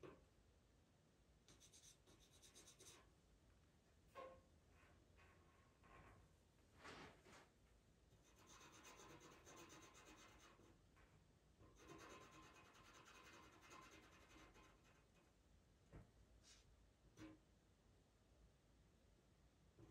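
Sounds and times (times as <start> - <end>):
pencil scratching on paper: 1.5 - 3.1, 8.2 - 10.7, 11.7 - 15.2.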